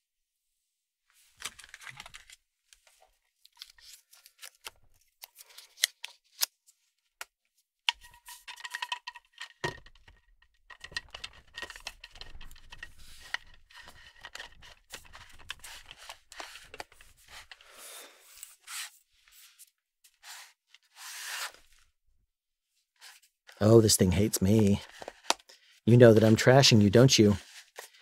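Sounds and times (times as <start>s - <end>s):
boom pole clicks and rattles: 7.9s - 15.6s.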